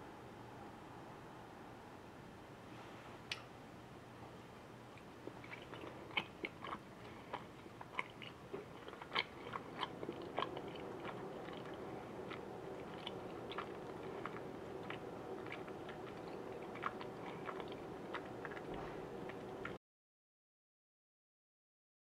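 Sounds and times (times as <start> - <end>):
person chewing: 5.2 - 19.8.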